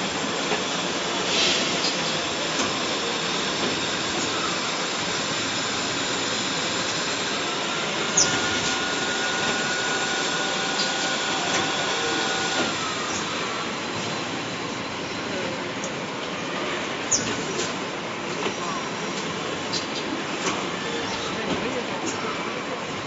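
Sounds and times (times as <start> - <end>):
machine mechanical noise: 0.0 - 16.0
sharp hydraulic hisses: 0.2 - 14.1.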